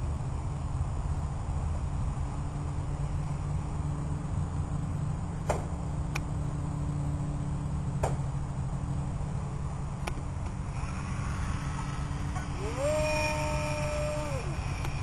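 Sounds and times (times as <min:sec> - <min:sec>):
faint steady hum: 0:00.0 - 0:15.0
low outdoor rumble: 0:00.0 - 0:15.0
electric motor whining: 0:10.5 - 0:15.0.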